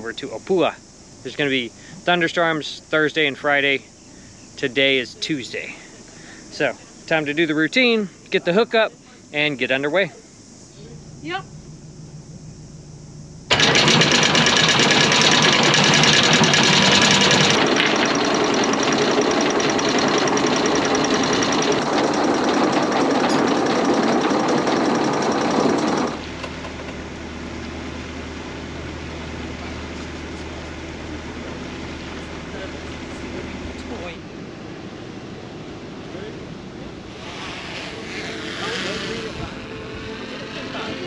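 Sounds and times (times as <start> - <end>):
boat engine drone: 0.0 - 41.0
anchor windlass clattering chain: 13.5 - 26.2.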